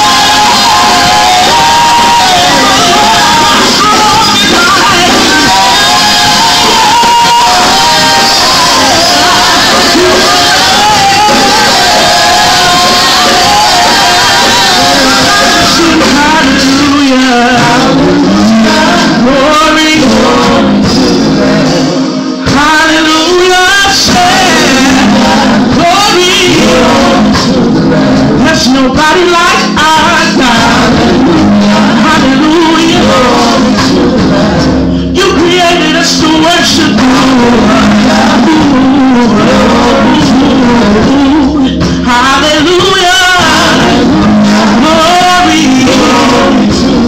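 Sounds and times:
live band with drums and keyboard: 0.0s - 47.0s
woman singing into microphone: 0.0s - 47.0s.

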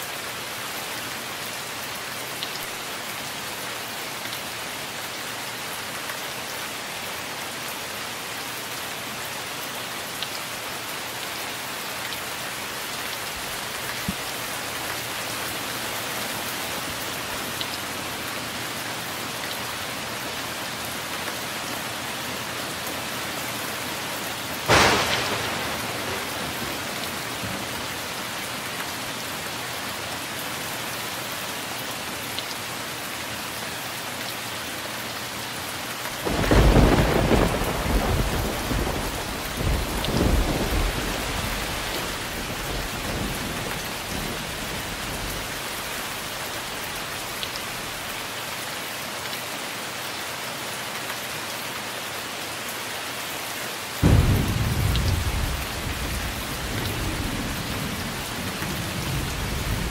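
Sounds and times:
heavy rain: 0.0s - 59.9s
thunder crack: 24.7s - 27.7s, 54.0s - 56.4s
rolling thunder rumble: 24.7s - 27.8s, 54.0s - 59.9s.

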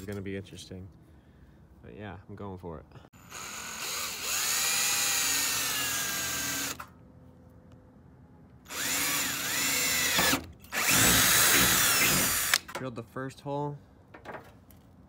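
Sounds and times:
cordless drill whining: 3.2s - 6.9s, 8.7s - 12.8s.

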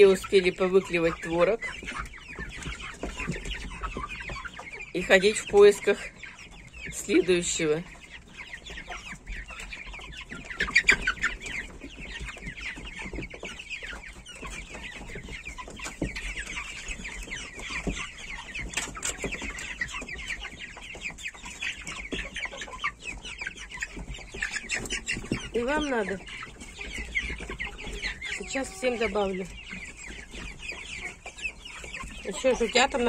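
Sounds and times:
young chickens cheeping: 0.0s - 33.0s.

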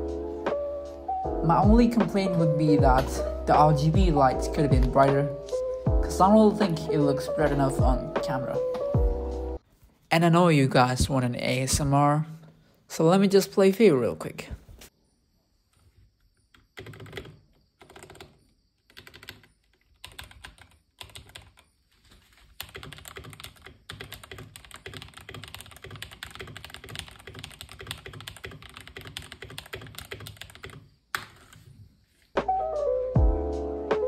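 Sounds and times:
mechanical keyboard typing: 16.5s - 21.7s, 22.6s - 31.6s.

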